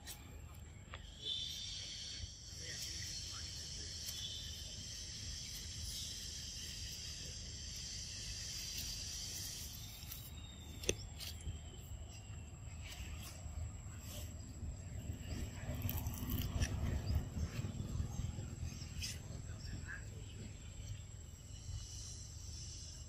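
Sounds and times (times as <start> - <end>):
high-pitched insect chorus: 0.0 - 23.0.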